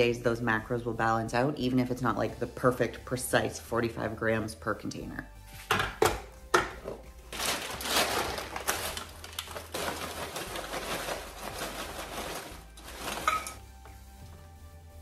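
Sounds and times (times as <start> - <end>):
frozen peas rattling into glass: 7.3 - 13.6.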